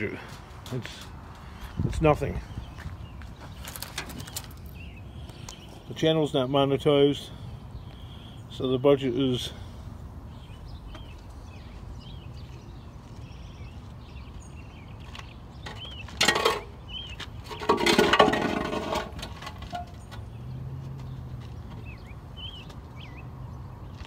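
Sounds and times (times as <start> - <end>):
scrap metal clanking: 15.7 - 16.8, 17.5 - 20.0
metal scraping: 17.5 - 20.0.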